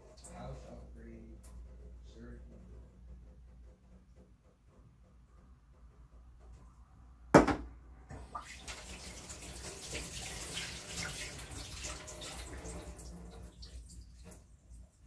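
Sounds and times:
hands rinsing with splashes: 0:08.1 - 0:14.5
water running from tap into sink: 0:08.1 - 0:15.0.

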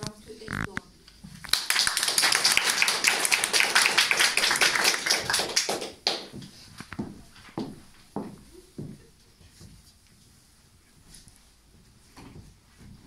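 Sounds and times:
small audience clapping: 0:01.4 - 0:06.6
footsteps on wooden floor: 0:06.3 - 0:10.4, 0:11.0 - 0:13.0.

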